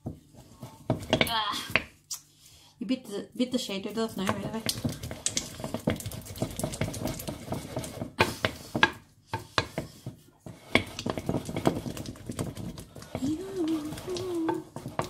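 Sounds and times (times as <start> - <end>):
wooden spoon beating in bowl: 4.1 - 15.0.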